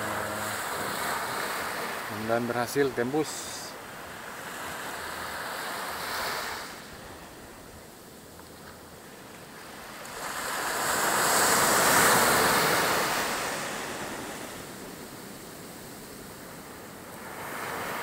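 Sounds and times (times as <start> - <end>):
wave breaking on beach: 0.0 - 3.8, 9.7 - 16.4.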